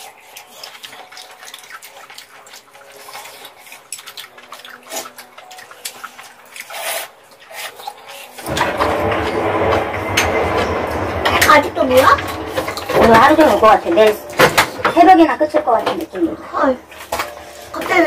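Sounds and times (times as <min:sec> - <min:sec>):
wet chewing: 0:00.0 - 0:08.5.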